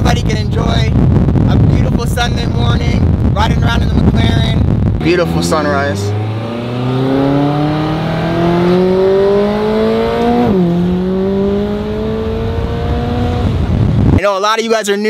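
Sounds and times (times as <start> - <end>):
sports car engine accelerating: 5.0 - 14.2.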